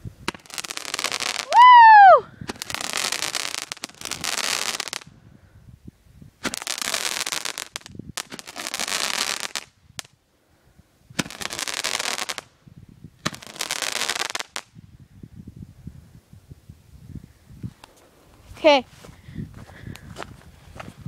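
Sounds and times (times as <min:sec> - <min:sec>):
firework sharp pops: 0:00.2 - 0:01.5, 0:02.4 - 0:05.1, 0:06.4 - 0:10.2, 0:11.1 - 0:12.6, 0:13.2 - 0:14.8
fireworks hissing bursts: 0:02.4 - 0:05.1, 0:06.4 - 0:09.7, 0:11.2 - 0:12.5, 0:13.2 - 0:14.6.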